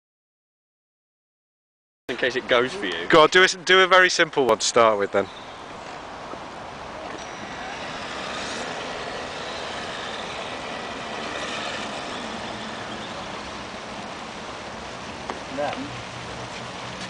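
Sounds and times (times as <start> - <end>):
rc truck motor and tyres whirring: 5.2 - 17.0
faint thin whine: 6.7 - 14.7.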